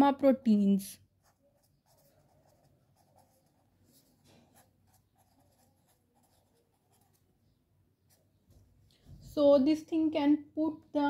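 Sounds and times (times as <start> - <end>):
pen scratching on paper: 1.2 - 7.4.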